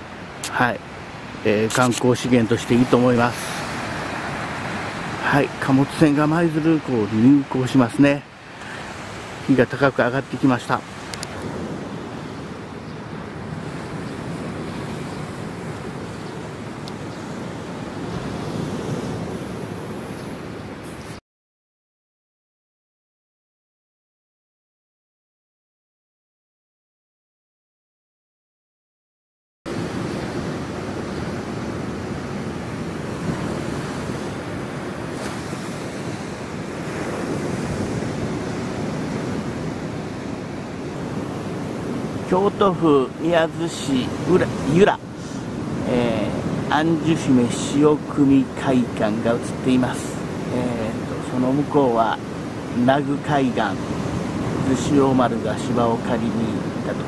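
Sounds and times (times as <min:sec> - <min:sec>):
surf breaking on sandy beach: 0:00.1 - 0:21.2, 0:29.7 - 0:57.0
wind on microphone: 0:10.3 - 0:21.2, 0:29.7 - 0:54.9.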